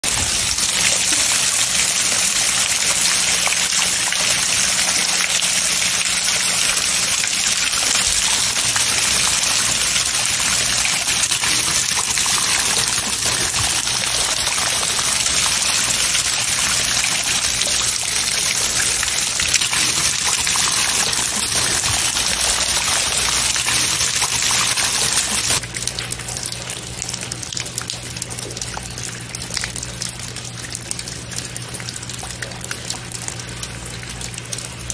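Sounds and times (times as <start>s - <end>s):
heavy rain on wet paving: 0.0s - 25.6s
stream trickling over pebbles: 0.0s - 34.9s.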